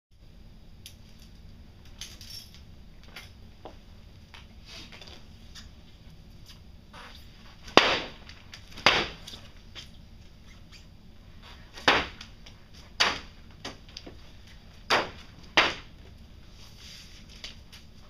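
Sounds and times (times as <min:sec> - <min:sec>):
sharp knocks: 0:11.8 - 0:12.2.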